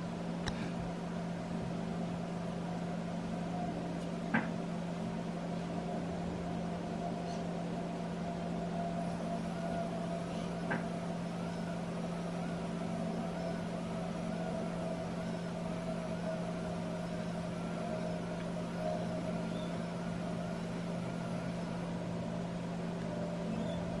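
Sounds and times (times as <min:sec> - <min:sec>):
small electric motor whining: 0:08.3 - 0:24.0.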